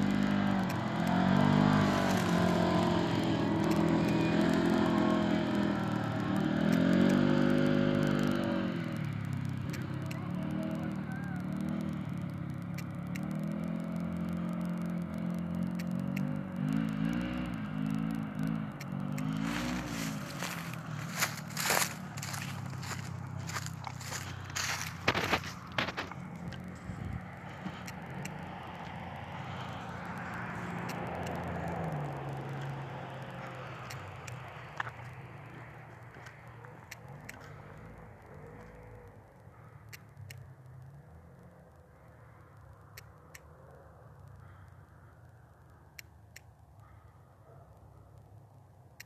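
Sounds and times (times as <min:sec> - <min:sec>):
vehicle engine running: 0:00.0 - 0:49.0
faint clicks: 0:05.5 - 0:19.4, 0:27.5 - 0:49.0.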